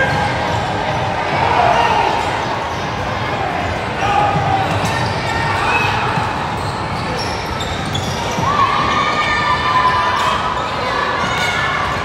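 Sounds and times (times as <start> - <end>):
murmur of voices: 0.0 - 12.0
balls bouncing on court floor: 3.6 - 8.6
shoe squeaks: 4.7 - 8.7.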